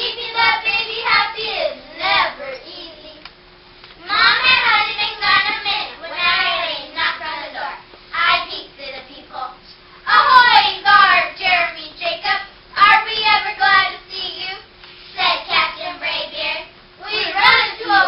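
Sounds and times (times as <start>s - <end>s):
children reciting in unison: 15.2s - 18.0s.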